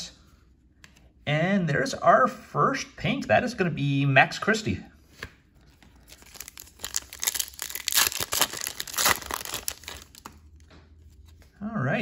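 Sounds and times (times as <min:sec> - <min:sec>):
foil wrapper tearing and crinkling: 0:06.0 - 0:10.4.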